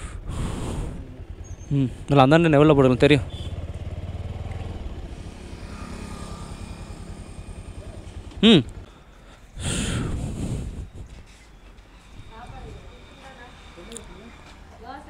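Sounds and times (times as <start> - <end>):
motorcycle engine rumbling: 0.0 - 15.0.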